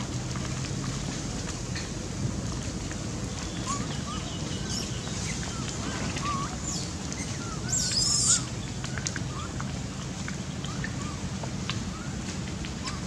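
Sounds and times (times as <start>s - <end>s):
monkeys chirping: 7.7s - 8.4s.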